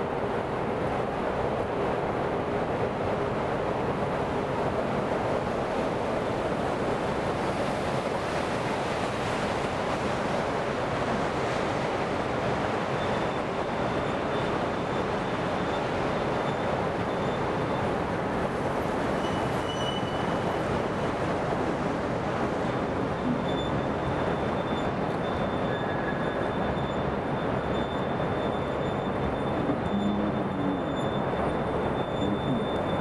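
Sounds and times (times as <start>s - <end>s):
vehicle road noise in tunnel: 0.0s - 33.0s
faint high tone: 29.8s - 31.0s.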